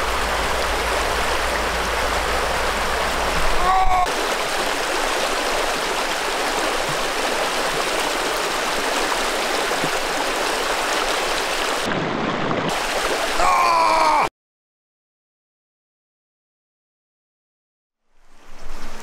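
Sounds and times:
stream rushing: 0:00.0 - 0:14.3, 0:18.1 - 0:19.0.

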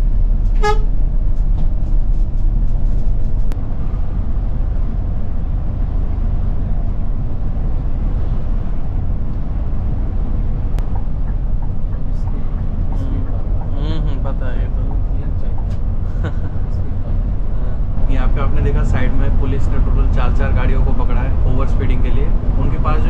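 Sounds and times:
bus road and engine drone: 0:00.0 - 0:23.0
short horn beep: 0:00.6 - 0:00.9.

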